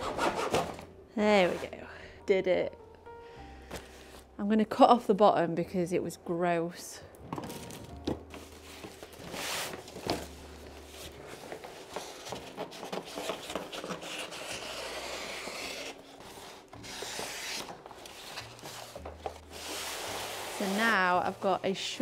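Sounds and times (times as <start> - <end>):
paper rubbing and rustling: 8.3 - 21.6.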